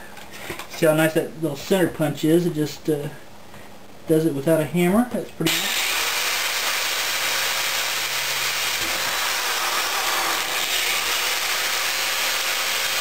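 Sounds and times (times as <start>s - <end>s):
electric drill boring into pipe: 5.5s - 13.0s.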